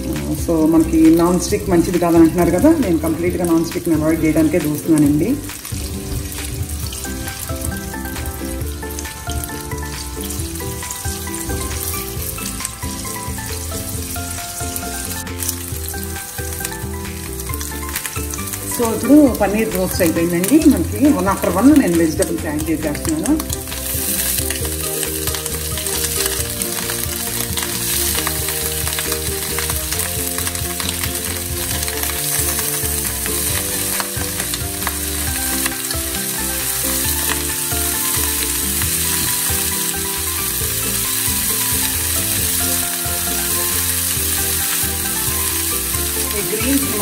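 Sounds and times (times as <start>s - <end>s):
vegetables sizzling in a frying pan: 0.0s - 47.0s
spatula pushing food in a pan: 23.4s - 47.0s.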